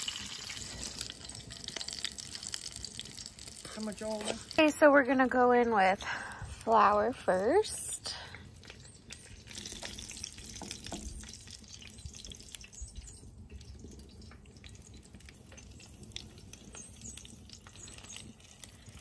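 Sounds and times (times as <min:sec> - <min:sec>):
small pops and crackles: 0:00.0 - 0:04.8, 0:06.0 - 0:19.0
fat sizzling in a pan: 0:00.0 - 0:05.9, 0:06.6 - 0:19.0.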